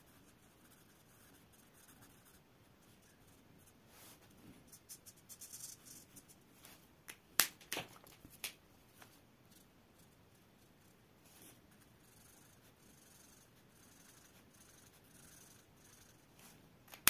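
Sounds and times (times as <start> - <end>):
marker scratching on paper: 0.0 - 6.4, 9.5 - 16.6.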